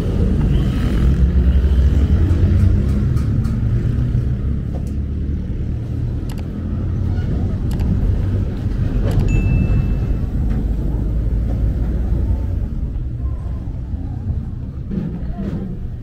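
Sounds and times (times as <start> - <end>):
motor vehicle engine rumbling: 0.0 - 16.0.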